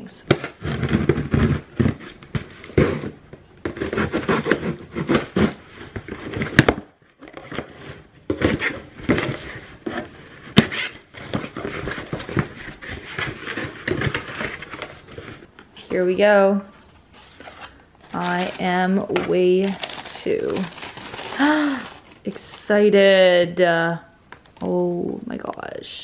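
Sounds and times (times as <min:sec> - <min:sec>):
knife slitting packing tape: 0:03.8 - 0:05.7
cardboard box handled: 0:17.2 - 0:22.4.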